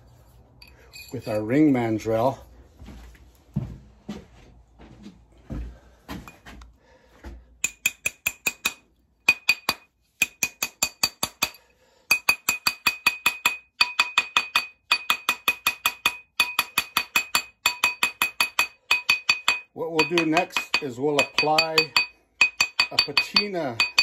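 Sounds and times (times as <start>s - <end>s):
mallet tapping metal ring: 7.6s - 24.0s
steel mandrel ringing: 7.6s - 24.0s.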